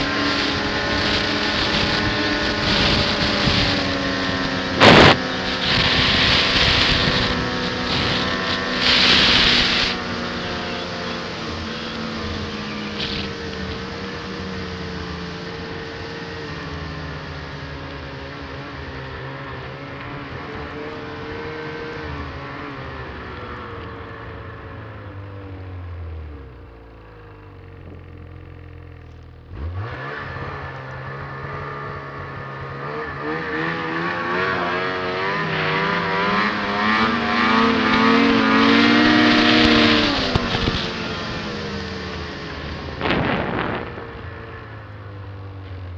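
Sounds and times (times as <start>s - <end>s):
snowmobile engine revving: 0.0s - 25.3s, 29.4s - 45.9s.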